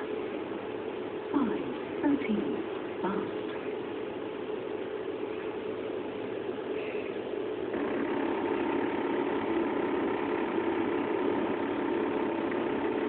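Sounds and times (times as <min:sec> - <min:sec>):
electronic hum: 0:07.7 - 0:13.0.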